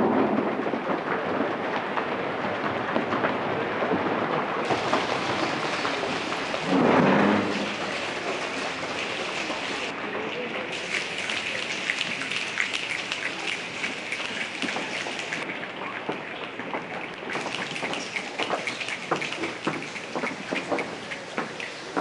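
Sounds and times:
audience clapping and snapping: 0:04.6 - 0:09.9, 0:10.8 - 0:15.4, 0:17.3 - 0:22.0.

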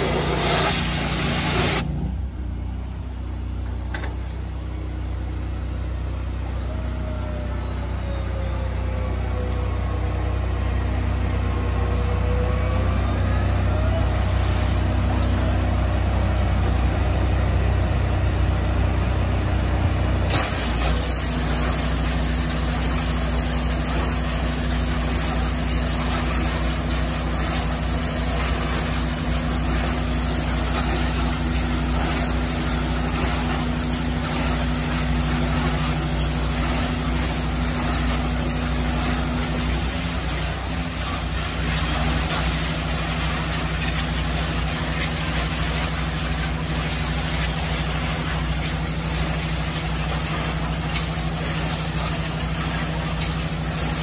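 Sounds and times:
pressure washer engine hum: 0:00.0 - 0:54.0
water jets spraying hiss: 0:20.3 - 0:54.0.

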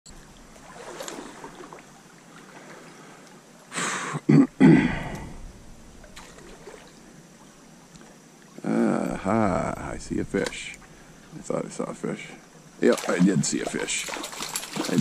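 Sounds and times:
stream rushing: 0:12.8 - 0:15.0.

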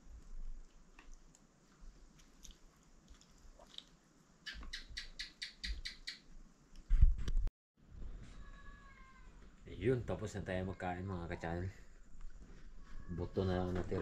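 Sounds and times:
people chewing: 0:00.0 - 0:04.0
camera bump and rustle: 0:06.9 - 0:07.5.

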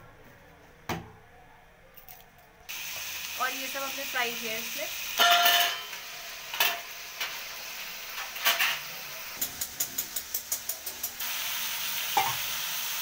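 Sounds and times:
vegetables sizzling in hot oil: 0:02.7 - 0:13.0.

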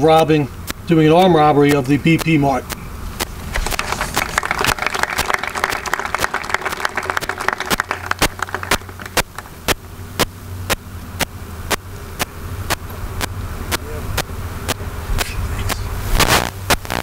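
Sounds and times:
sharp evenly spaced clicks: 0:00.0 - 0:17.0
audience applause: 0:03.5 - 0:09.6.

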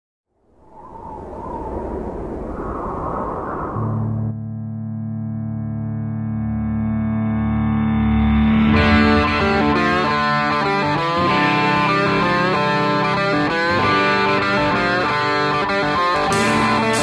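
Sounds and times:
band playing music: 0:16.1 - 0:17.0.

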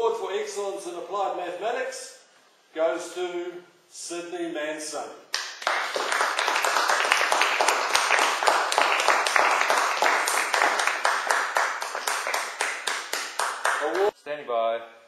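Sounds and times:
people applauding: 0:05.3 - 0:14.1.

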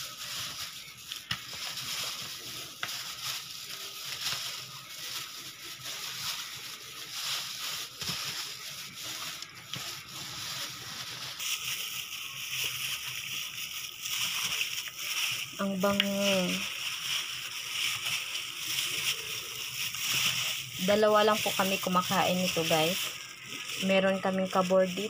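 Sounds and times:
wet squelching and crinkling: 0:00.0 - 0:25.0.

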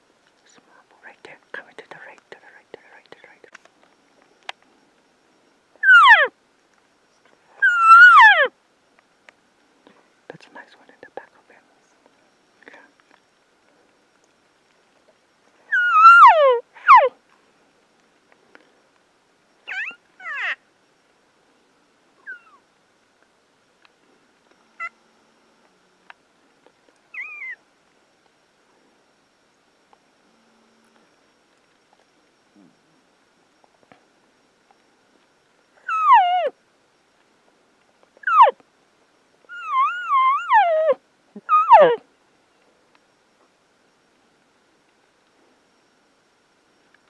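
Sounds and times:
elk mewing whistle: 0:05.8 - 0:06.3, 0:07.6 - 0:08.5, 0:15.7 - 0:17.1, 0:35.9 - 0:36.5
elk mewing: 0:07.6 - 0:08.5, 0:15.7 - 0:17.2, 0:35.8 - 0:36.5, 0:38.2 - 0:38.6, 0:39.5 - 0:42.0.

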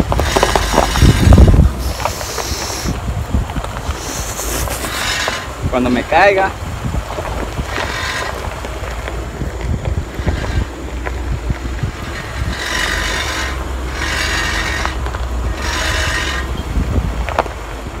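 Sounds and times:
hissy scrapes: 0:00.0 - 0:03.1, 0:03.7 - 0:06.0, 0:11.8 - 0:16.6
steady low rumble: 0:00.0 - 0:18.0.

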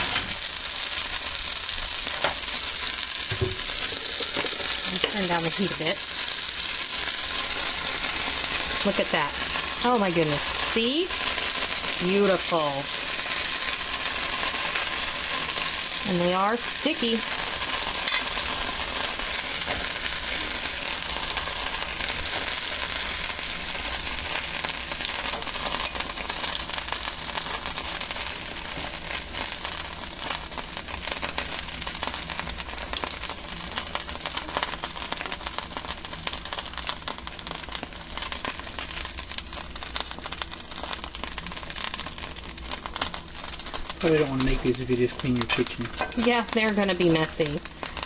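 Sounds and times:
dumplings sizzling in a skillet: 0:00.0 - 0:48.0.

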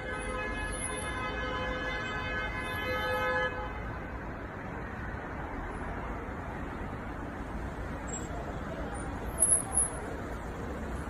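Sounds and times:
car horns blaring: 0:00.0 - 0:03.8
street traffic noise: 0:00.0 - 0:11.0.

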